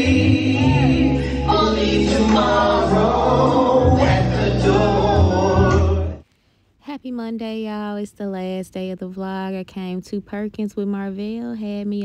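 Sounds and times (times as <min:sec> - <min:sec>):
backing track with heavy bass: 0:00.0 - 0:06.2
voices singing along: 0:00.0 - 0:06.2.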